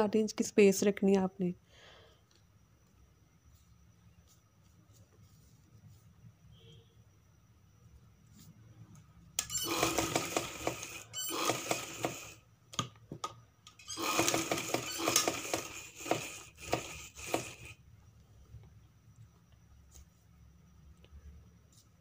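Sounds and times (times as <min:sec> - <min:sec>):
sewing machine stitching: 0:09.4 - 0:12.4, 0:13.8 - 0:17.8.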